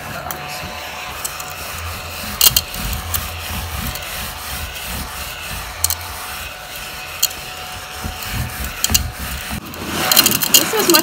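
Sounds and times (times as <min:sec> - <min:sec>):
hand vacuum whining: 0:00.0 - 0:11.0
vacuum rubbing on upholstery: 0:00.0 - 0:11.0
sharp clicks: 0:05.6 - 0:06.3.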